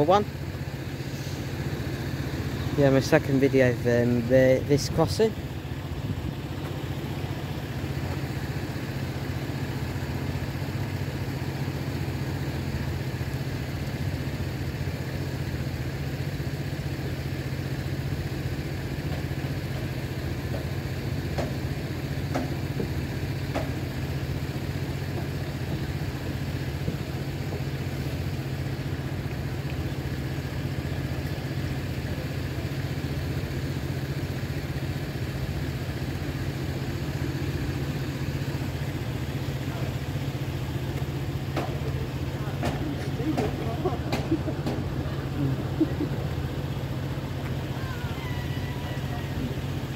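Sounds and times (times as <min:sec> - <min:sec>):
idling engines hum: 0:00.0 - 0:49.9.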